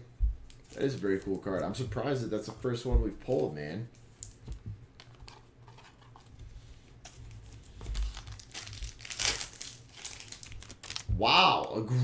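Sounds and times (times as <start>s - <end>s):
foil wrappers crinkling: 0.4s - 1.8s, 7.0s - 11.1s
cards being handled: 0.4s - 11.1s.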